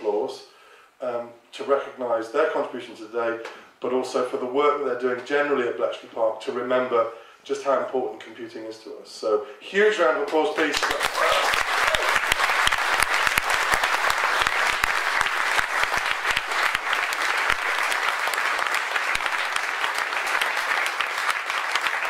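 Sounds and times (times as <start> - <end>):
audience applauding: 10.6 - 22.0.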